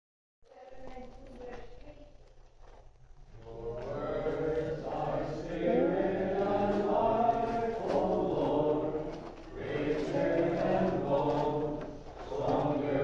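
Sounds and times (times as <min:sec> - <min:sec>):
choir chanting: 0:03.3 - 0:13.0.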